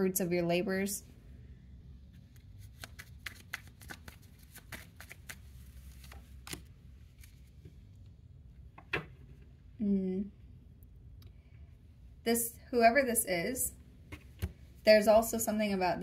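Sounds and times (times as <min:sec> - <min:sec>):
cards shuffling: 0:02.2 - 0:07.6.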